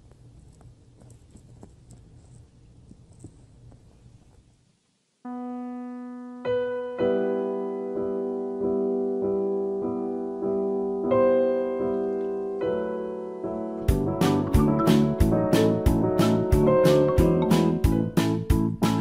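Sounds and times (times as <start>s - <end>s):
piano music: 5.3s - 19.0s.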